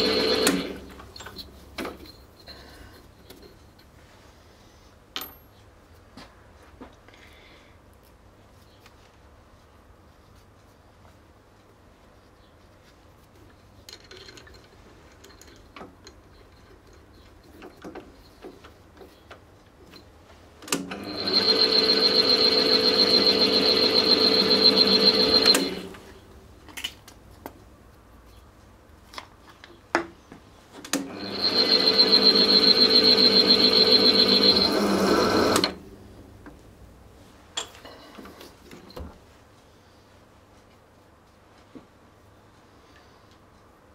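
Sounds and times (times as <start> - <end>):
drill press motor whining: 0.0 - 0.9, 20.8 - 26.0, 31.0 - 35.8.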